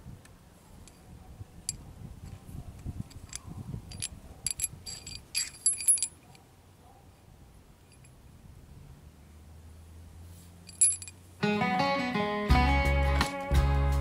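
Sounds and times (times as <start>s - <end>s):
metal washers clinking: 1.6s - 6.4s, 7.8s - 8.2s, 10.6s - 11.2s.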